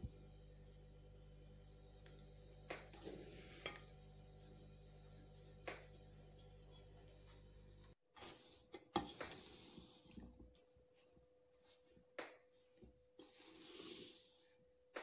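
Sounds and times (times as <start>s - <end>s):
spatula scraping pot: 2.9s - 3.9s.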